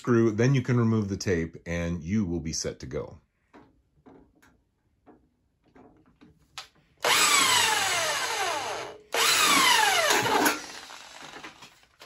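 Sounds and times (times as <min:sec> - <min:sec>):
handheld drill boring into metal: 0:07.0 - 0:11.7.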